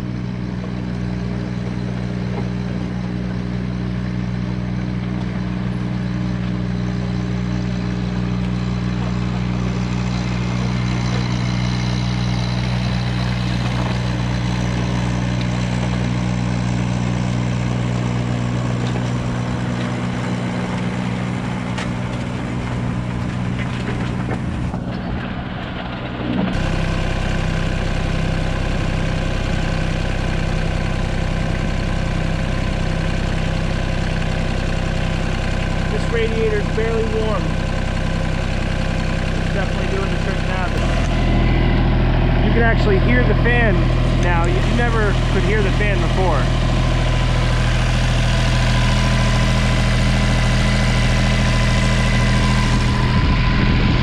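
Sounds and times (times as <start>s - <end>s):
diesel engine running: 0.0s - 54.0s
cooling fan turning: 35.0s - 54.0s.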